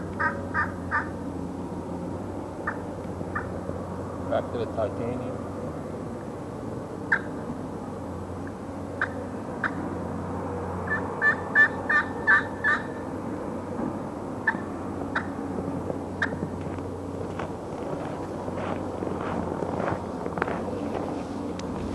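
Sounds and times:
turkey call clucks: 0.0 - 1.2, 2.6 - 3.5, 7.1 - 7.4, 9.0 - 9.8, 10.9 - 13.0, 14.4 - 15.3, 16.2 - 16.4
turkey call yelps: 0.0 - 1.2, 2.6 - 3.5, 7.1 - 7.3, 9.0 - 9.8, 10.9 - 13.0.

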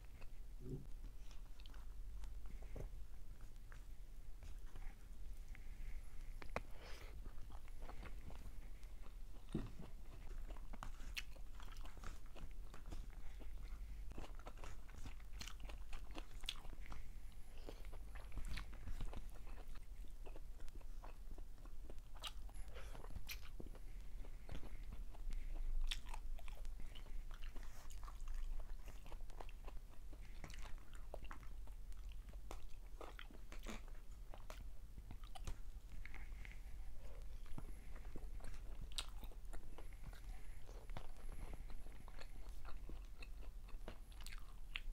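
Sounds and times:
chewing fried fish: 0.0 - 44.9.

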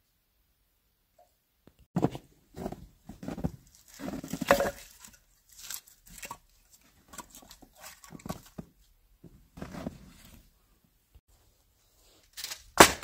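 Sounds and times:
firewood logs clattering: 2.0 - 5.2.

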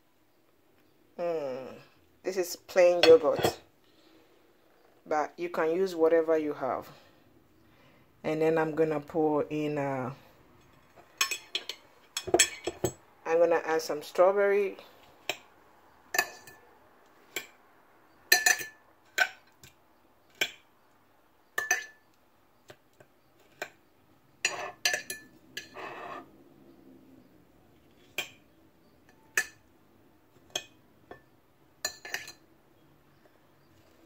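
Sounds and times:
scraping and clatter of dishes: 10.7 - 13.0, 24.4 - 26.3, 31.9 - 32.4
metal fork clinking on ceramic dishes: 11.2 - 13.0, 16.1 - 16.6, 18.3 - 19.4, 21.6 - 22.0, 24.4 - 25.9, 29.1 - 29.6, 30.5 - 32.4.

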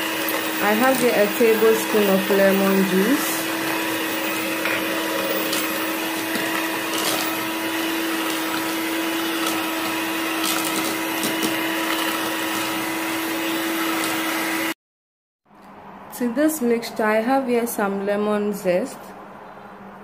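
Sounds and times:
electric hand mixer humming: 0.0 - 14.8.

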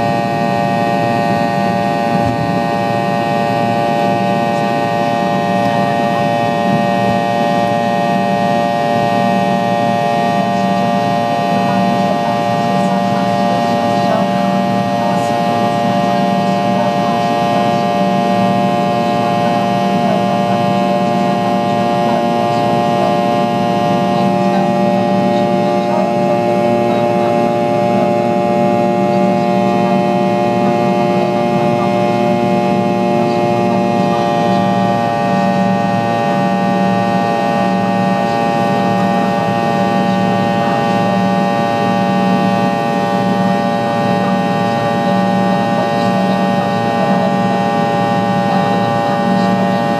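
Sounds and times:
jet engine whine in cabin: 0.0 - 49.9
low engine rumble: 0.0 - 49.9.

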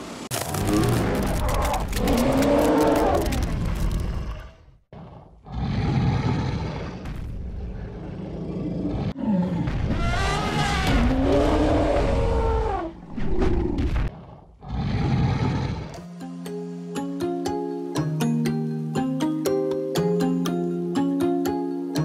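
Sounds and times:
mammoth growl: 0.6 - 7.0, 7.8 - 16.0.

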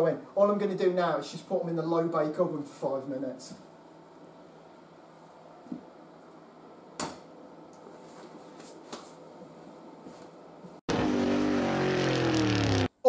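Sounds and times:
tones sliding down in pitch: 10.9 - 12.9.

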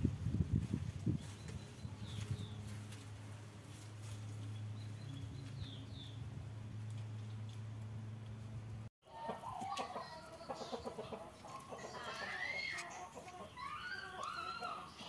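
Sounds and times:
chickens clucking: 9.0 - 15.0.

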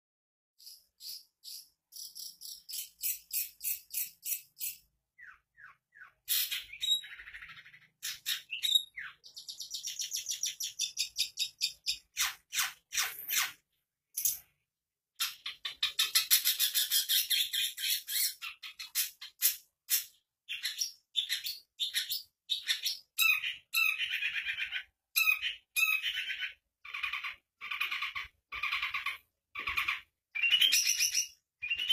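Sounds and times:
bird singing chips and trills: 30.3 - 31.9.

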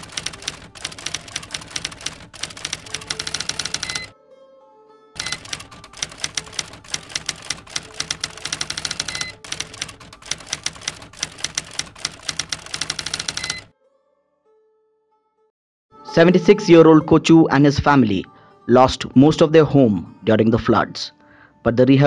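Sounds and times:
typewriter bell ding: 0.0 - 4.1, 5.2 - 13.7
typewriter keys striking: 0.0 - 4.1, 5.2 - 13.7.

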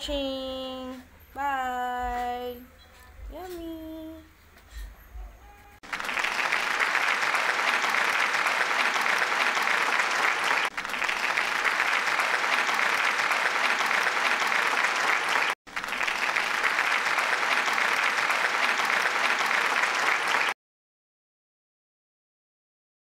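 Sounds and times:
crowd applauding: 5.8 - 20.6.

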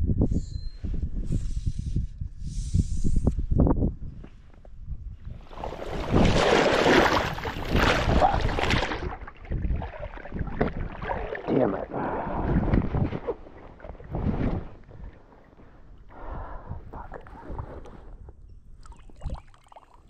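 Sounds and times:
water splashing and churning: 5.4 - 16.0, 18.8 - 20.0
water sloshing: 5.4 - 16.1, 18.8 - 20.0.

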